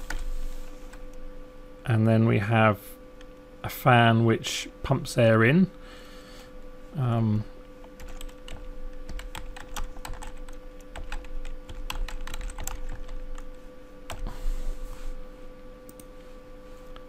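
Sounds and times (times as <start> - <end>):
steady hum: 0.0 - 17.0
keyboard typing: 7.8 - 13.5.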